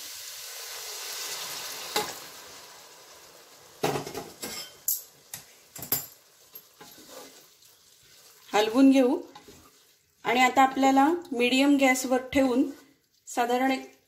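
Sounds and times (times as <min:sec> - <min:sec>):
hot water hissing in pot: 0:00.0 - 0:04.2, 0:05.2 - 0:14.0
wooden spatula scraping pot: 0:06.5 - 0:14.0.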